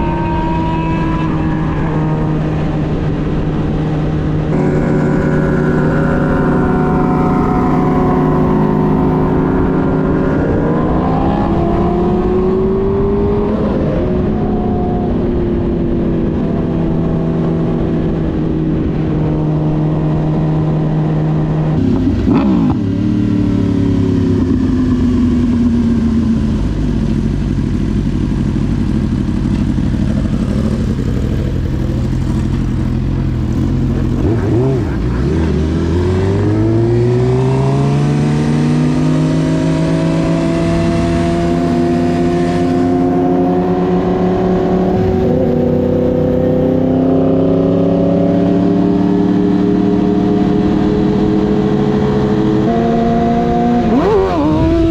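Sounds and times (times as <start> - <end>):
vehicle engine running: 2.6 - 10.6.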